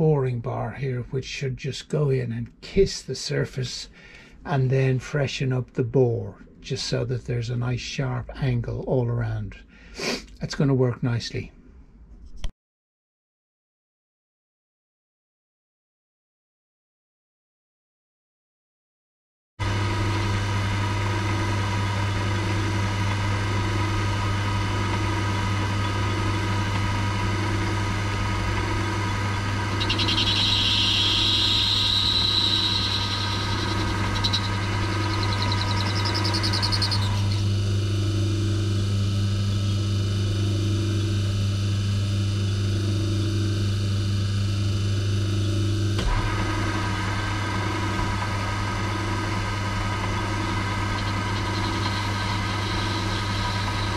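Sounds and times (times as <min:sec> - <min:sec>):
lathe running with throb: 0:19.6 - 0:53.9.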